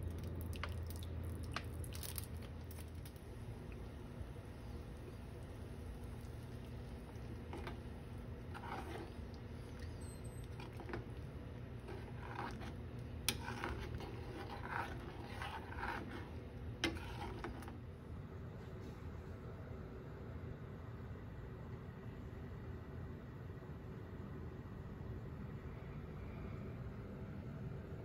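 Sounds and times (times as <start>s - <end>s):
steady low hum: 0.0s - 28.0s
spoon scraping a saucepan: 6.6s - 17.8s.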